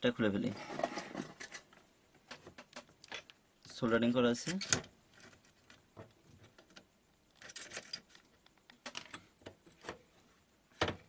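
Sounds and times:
clicks and rattles of small parts: 0.8s - 3.8s, 4.4s - 10.0s.

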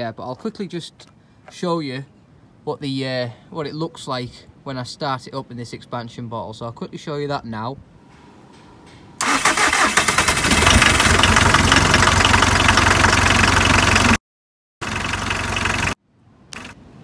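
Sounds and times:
diesel van engine running: 9.2s - 14.2s, 14.8s - 16.0s.

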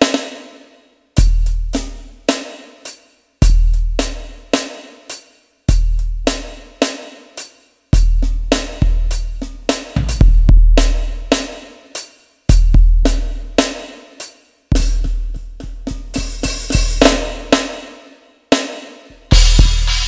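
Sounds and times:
cymbal crashes: 19.3s - 20.0s.

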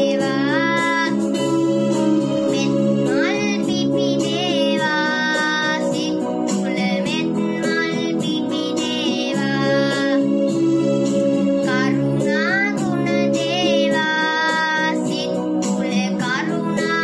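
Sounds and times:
boy singing devotional song: 0.0s - 1.5s, 2.4s - 10.5s, 11.6s - 17.0s
instrumental backing track: 0.0s - 17.0s.

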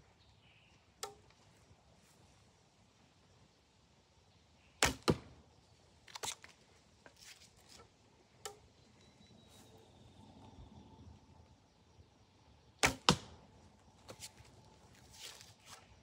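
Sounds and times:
arrow handling clicks and taps: 1.0s - 1.4s, 6.1s - 8.6s
bowstring snapping: 1.0s - 1.4s
arrow striking target: 4.8s - 5.3s, 12.8s - 13.4s.

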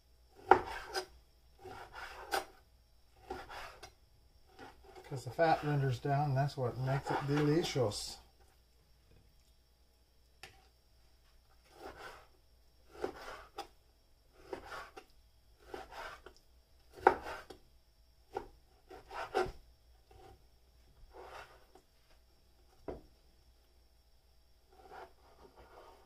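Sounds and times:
knife cutting on plastic board: 0.4s - 2.6s, 3.2s - 3.9s, 6.9s - 7.7s, 11.6s - 12.3s, 12.9s - 13.7s, 14.4s - 17.6s, 18.3s - 20.4s, 21.1s - 21.8s, 24.7s - 26.0s.

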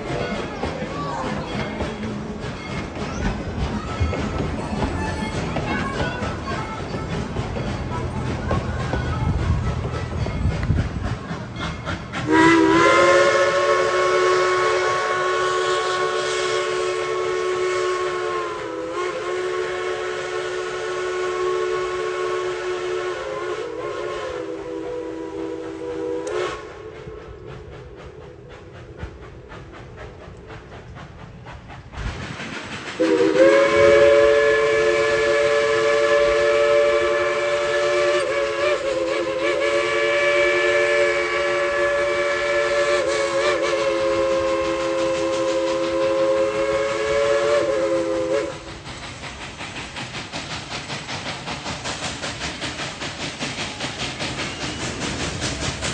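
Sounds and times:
steam locomotive chime whistle: 0.0s - 28.8s, 33.0s - 49.2s, 52.4s - 55.9s
locomotive running noise: 0.0s - 55.9s.

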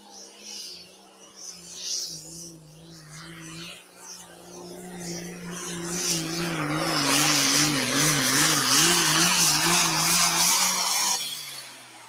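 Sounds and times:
tractor engine at full throttle: 4.4s - 12.0s.

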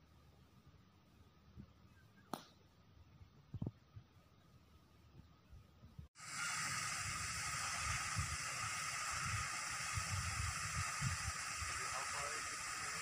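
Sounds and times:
fountain water spraying: 6.2s - 13.0s
wind buffeting microphone: 6.7s - 12.7s.

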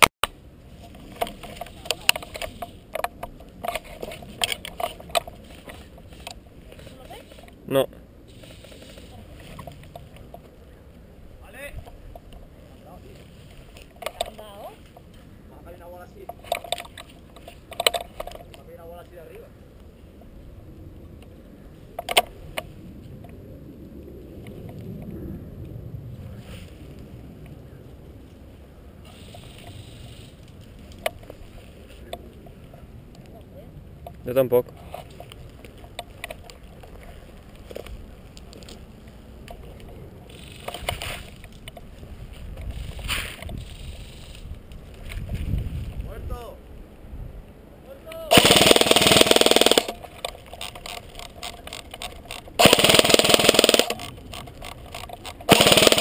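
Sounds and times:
handling clicks and crackles: 0.0s - 7.6s, 11.8s - 15.3s, 16.2s - 18.9s, 21.2s - 23.4s, 29.1s - 46.1s, 48.1s - 56.0s
wind rumble on microphone: 20.0s - 47.8s
sharp clicks: 48.1s - 56.0s.

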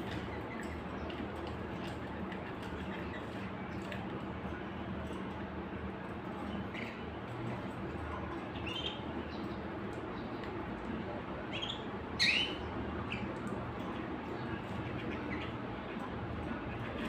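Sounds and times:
low background hum: 0.0s - 17.0s
canaries chirping: 6.4s - 10.5s, 11.3s - 17.0s.

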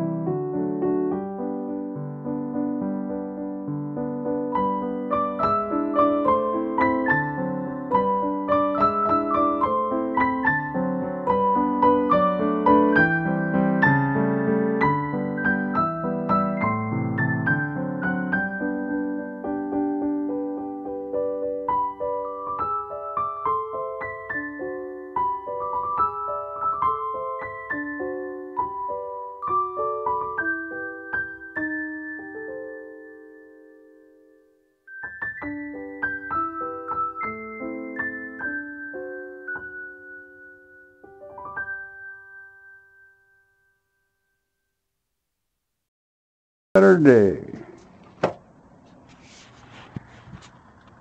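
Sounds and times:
piano music: 0.0s - 44.4s.

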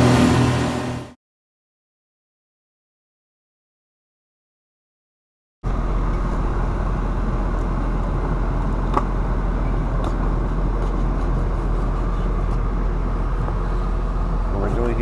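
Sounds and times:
low rumble and hiss: 5.7s - 15.0s.

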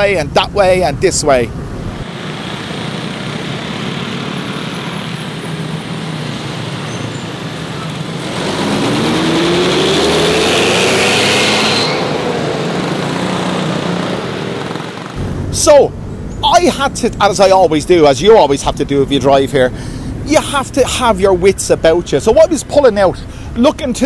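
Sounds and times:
street traffic: 0.0s - 24.0s
motorcycles passing: 1.2s - 23.6s
bus accelerating past: 1.6s - 17.1s.

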